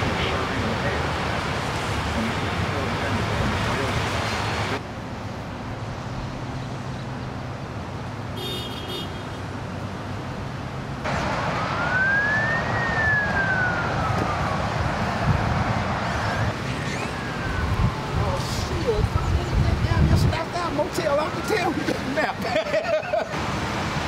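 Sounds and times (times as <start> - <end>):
outdoor background noise: 0.0 - 24.0
siren wailing: 11.6 - 15.2, 16.0 - 19.6, 20.9 - 22.0.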